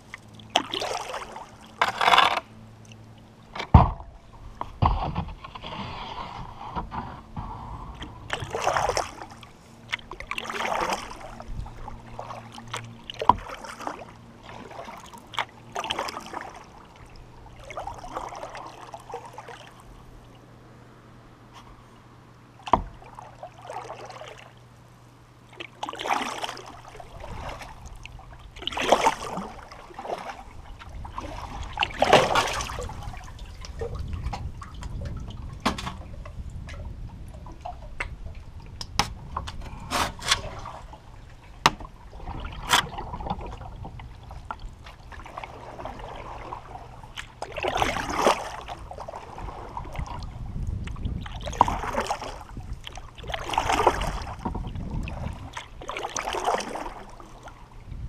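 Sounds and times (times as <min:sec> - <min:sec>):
paddle strokes splashing: 0:00.0 - 0:20.4, 0:22.5 - 0:57.8
water trickling and lapping: 0:00.0 - 0:58.0
low rumble: 0:32.6 - 0:45.4.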